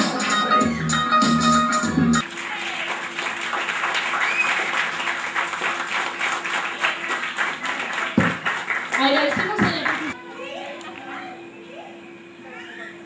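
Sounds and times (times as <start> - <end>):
people applauding: 2.2 - 10.2.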